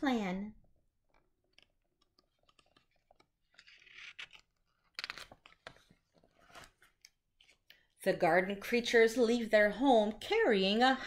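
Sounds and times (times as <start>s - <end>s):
book pages turning: 1.0s - 7.9s.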